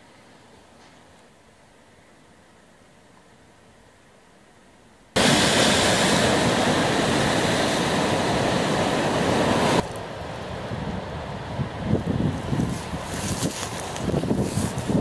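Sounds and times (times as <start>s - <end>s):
faint steady hiss: 0.0s - 15.0s
surf breaking over rocks: 5.2s - 10.6s.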